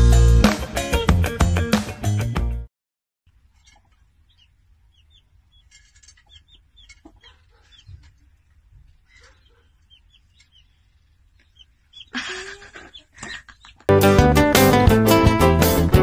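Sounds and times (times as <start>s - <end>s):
chick peeping softly: 3.4s - 13.9s.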